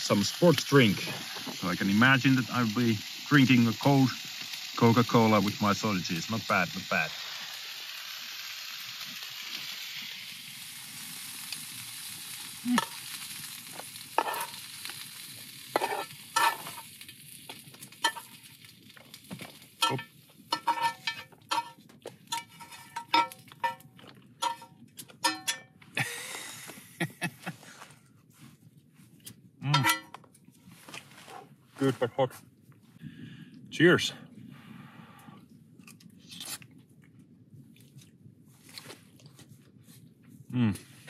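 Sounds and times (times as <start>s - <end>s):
food sizzling in frying pan: 0.0s - 26.5s
utensil scraping and clinking on pan: 14.2s - 14.7s, 15.8s - 16.9s, 18.0s - 18.4s, 19.8s - 25.7s, 29.7s - 30.2s.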